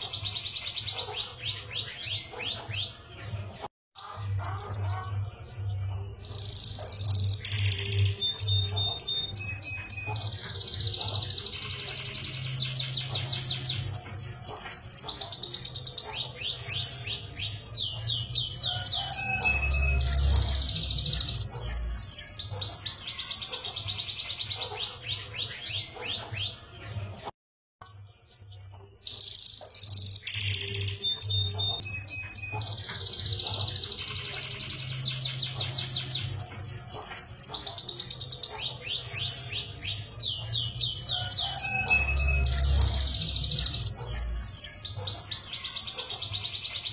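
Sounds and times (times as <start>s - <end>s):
canary singing trills: 0.0s - 27.0s, 27.8s - 46.9s.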